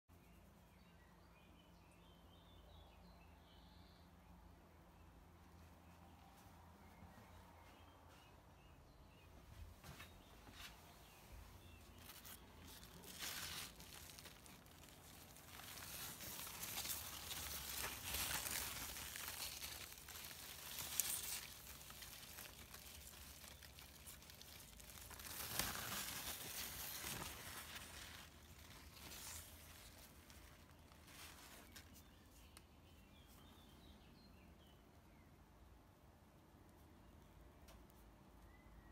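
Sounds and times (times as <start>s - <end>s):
leaves rustling: 9.8s - 32.6s.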